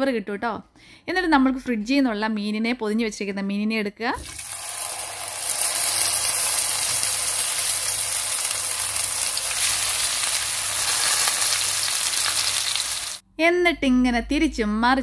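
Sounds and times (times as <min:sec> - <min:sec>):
fish sizzling in oil: 0:04.4 - 0:13.2.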